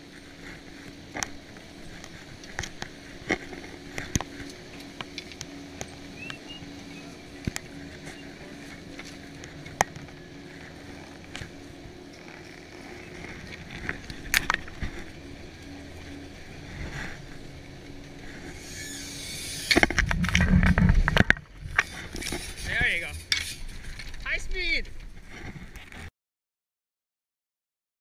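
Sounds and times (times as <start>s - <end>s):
lift machinery humming: 0.0s - 25.7s.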